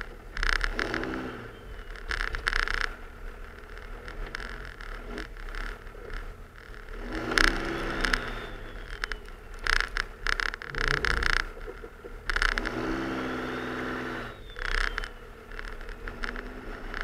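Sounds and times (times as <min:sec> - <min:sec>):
diesel engine under load: 0:00.0 - 0:17.0
faint whistle: 0:07.6 - 0:09.7, 0:13.2 - 0:15.4.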